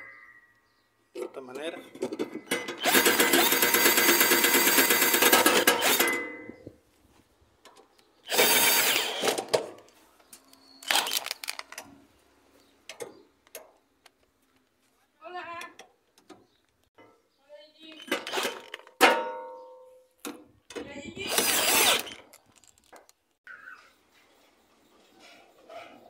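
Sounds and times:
power drill driving bolts: 2.0s - 6.3s, 8.2s - 9.8s, 10.8s - 11.7s, 18.0s - 18.9s, 21.2s - 22.8s.

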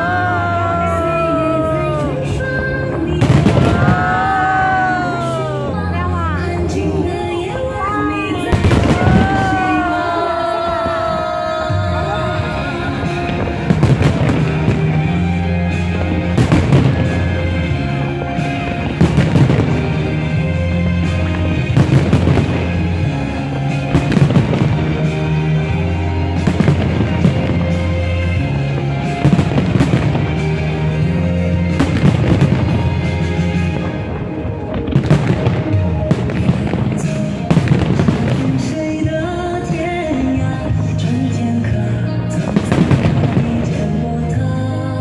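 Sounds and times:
fireworks bursting: 0.0s - 44.8s
music with steady bass line: 11.8s - 45.0s.

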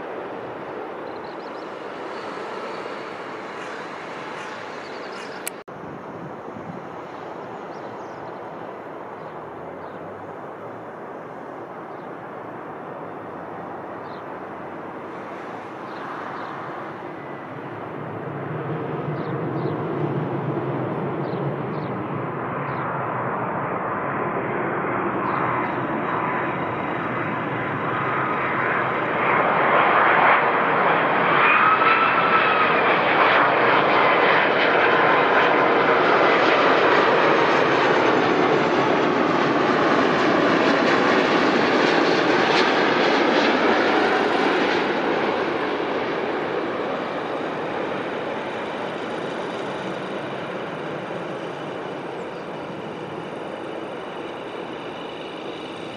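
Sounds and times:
jet airliner engines: 0.0s - 55.9s.

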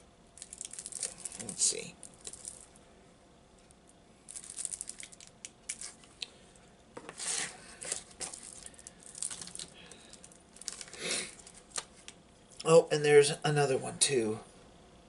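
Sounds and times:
plastic wrapper crinkling: 0.4s - 2.8s, 4.3s - 6.2s, 7.1s - 12.6s.

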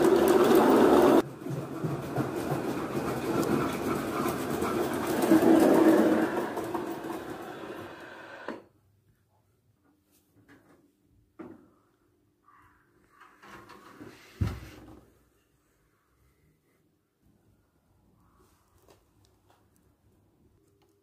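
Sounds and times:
model train rolling on track: 0.0s - 8.6s.

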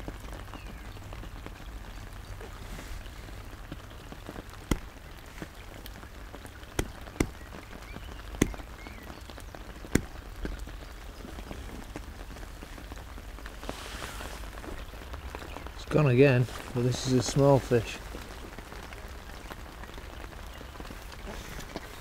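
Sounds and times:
rain on an umbrella: 0.0s - 22.0s
heavy drops tapping: 4.7s - 5.0s, 6.8s - 7.6s, 8.3s - 8.8s, 9.9s - 10.8s.

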